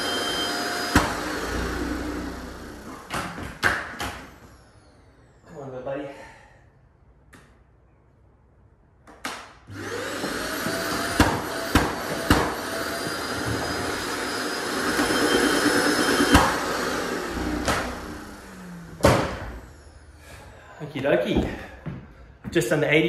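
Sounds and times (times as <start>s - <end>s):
shop vacuum motor whining: 0.0s - 3.1s, 9.7s - 20.7s.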